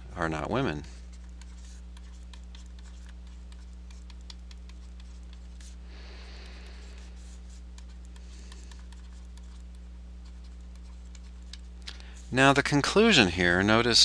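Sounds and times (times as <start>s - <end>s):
low electrical hum: 0.0s - 14.0s.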